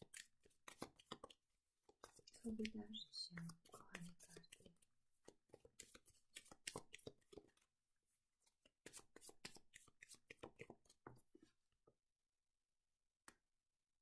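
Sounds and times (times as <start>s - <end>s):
cards shuffled by hand: 0.0s - 2.8s, 3.4s - 7.7s, 8.5s - 11.4s.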